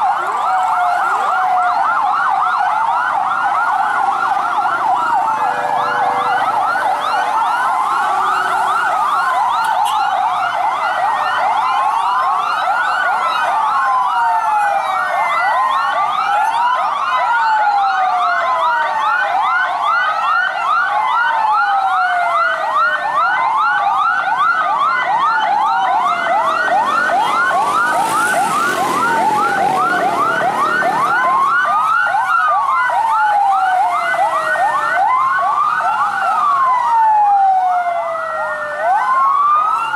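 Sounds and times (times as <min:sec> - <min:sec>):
emergency sirens wailing: 0:00.0 - 0:39.9.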